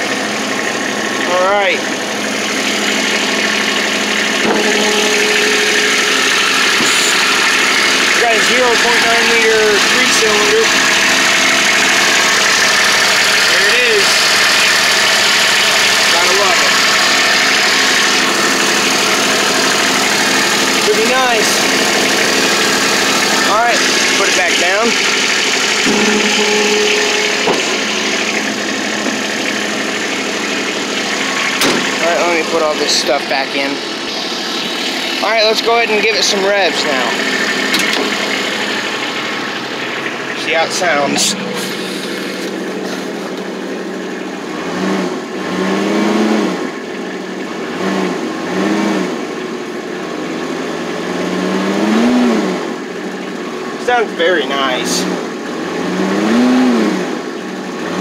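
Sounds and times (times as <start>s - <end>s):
diesel engine idling: 0.0s - 56.4s
brief whine: 4.4s - 7.3s, 25.8s - 28.4s.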